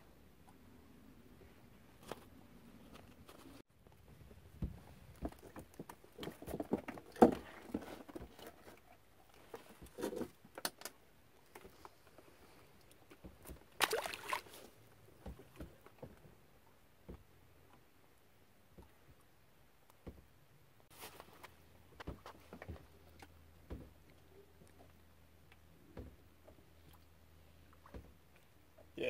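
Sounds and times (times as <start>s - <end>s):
short splash: 13.8s - 14.7s.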